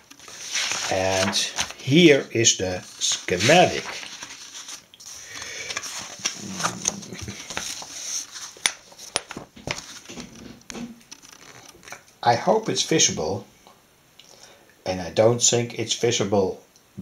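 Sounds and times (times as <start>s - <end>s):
paper page rustling and crinkling: 0.0s - 12.0s.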